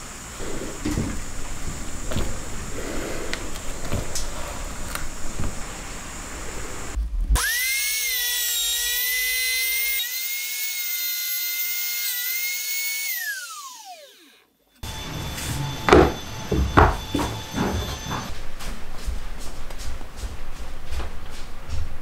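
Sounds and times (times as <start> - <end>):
trim router whining: 0.0 - 18.3
knocks on plywood: 15.9 - 18.3.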